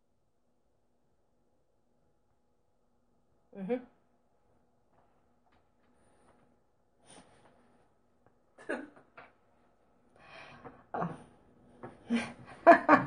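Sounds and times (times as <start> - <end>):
breaths: 5.8 - 7.8, 10.1 - 12.3.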